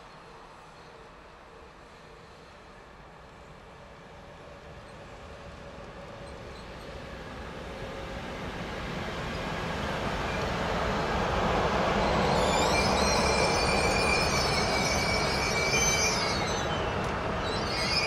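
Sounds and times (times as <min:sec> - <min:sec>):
train rumbling past: 0:00.0 - 0:18.0
high-pitched wheel squeal: 0:12.0 - 0:18.0.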